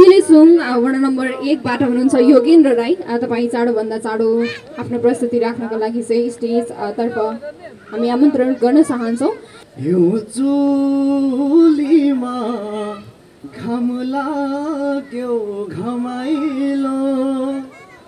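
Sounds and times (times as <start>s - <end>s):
solo voice singing without words: 9.7s - 18.0s.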